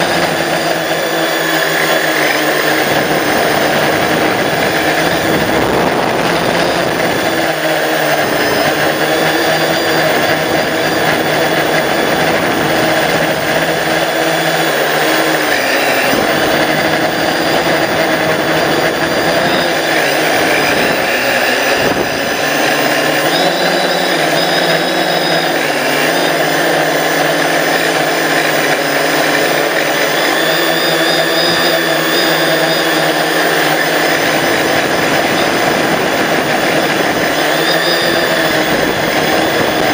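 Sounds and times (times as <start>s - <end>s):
drone propellers buzzing: 0.0s - 39.9s.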